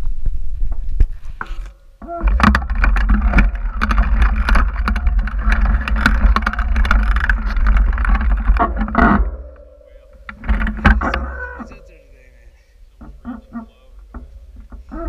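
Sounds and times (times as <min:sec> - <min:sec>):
bike clattering and rattling: 0:00.0 - 0:11.8
tyre noise on dirt: 0:00.0 - 0:11.9.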